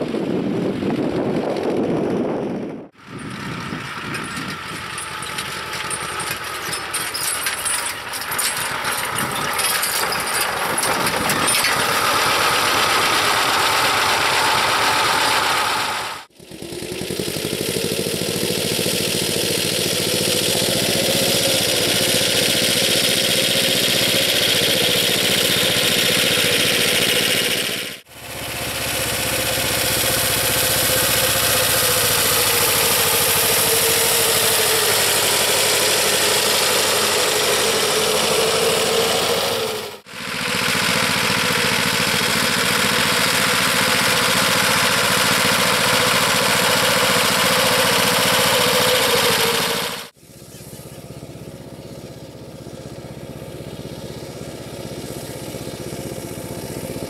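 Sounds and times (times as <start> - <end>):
tractor diesel engine running: 0.0 - 57.0
clicking rattles: 4.1 - 12.0.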